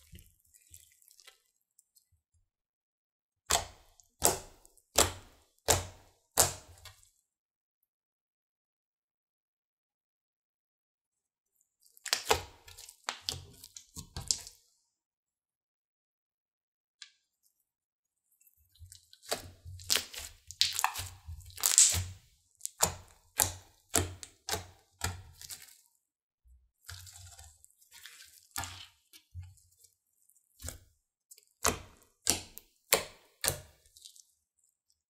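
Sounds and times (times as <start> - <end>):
slime popping and crackling: 19.2 - 25.7.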